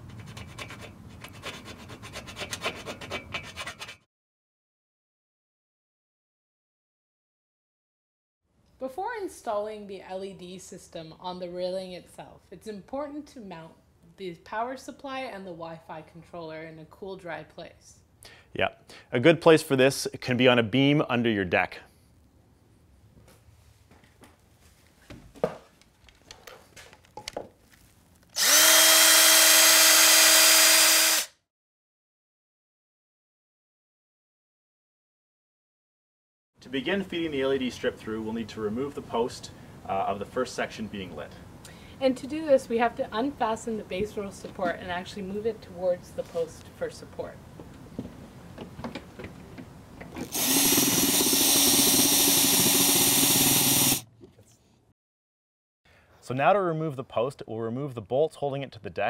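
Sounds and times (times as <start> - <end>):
cordless drill spinning: 28.3 - 31.4, 50.2 - 54.1.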